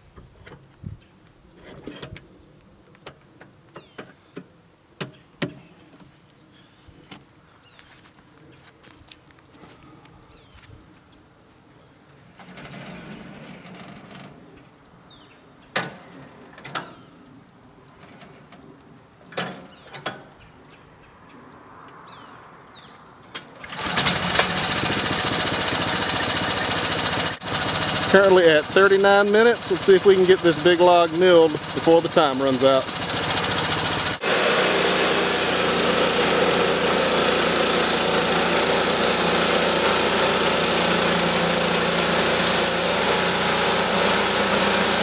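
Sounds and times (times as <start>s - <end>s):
sawmill engine running: 23.6s - 45.0s.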